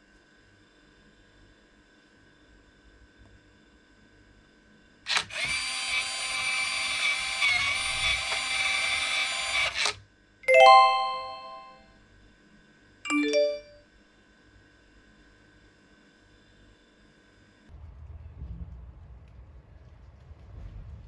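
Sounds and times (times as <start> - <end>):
smart lock motor whirring: 5.1 - 10.0
electronic chime: 10.5 - 11.8, 13.1 - 13.8
falling electronic notes: 10.5 - 11.8.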